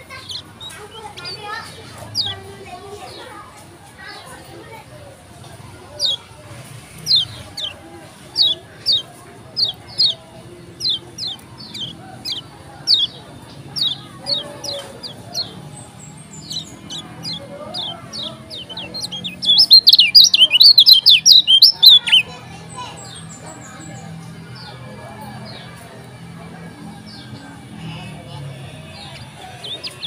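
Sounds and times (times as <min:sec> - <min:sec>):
bird chattering: 0:00.0 - 0:02.4, 0:06.9 - 0:10.2, 0:10.8 - 0:22.3
bird singing high slurred notes: 0:13.8 - 0:22.3.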